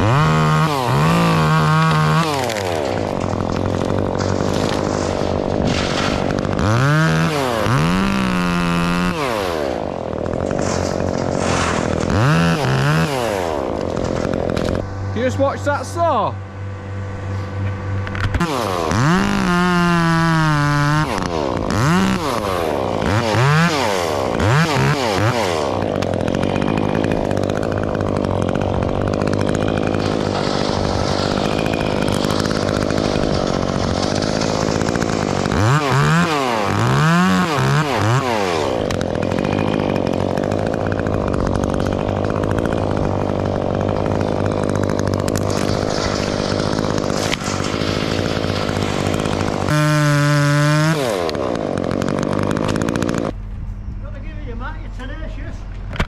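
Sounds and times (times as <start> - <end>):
chainsaw revving and cutting: 0.0 - 53.4.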